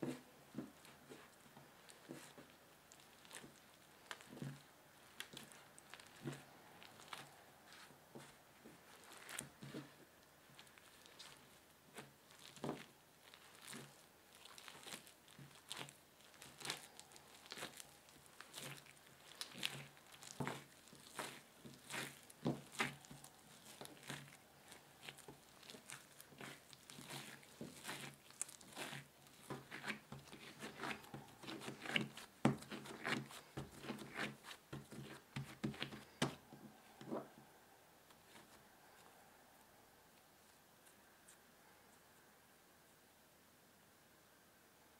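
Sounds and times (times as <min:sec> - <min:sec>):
dough being kneaded by hand: 0:00.0 - 0:37.4.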